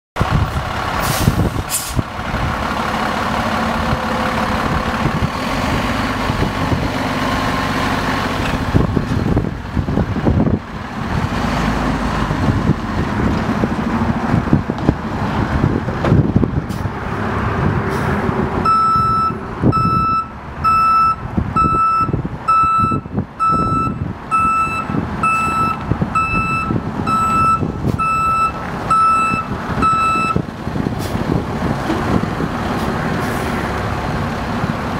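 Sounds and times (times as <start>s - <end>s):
truck diesel engine running: 0.2s - 34.9s
truck backup alarm beeping: 18.6s - 30.4s.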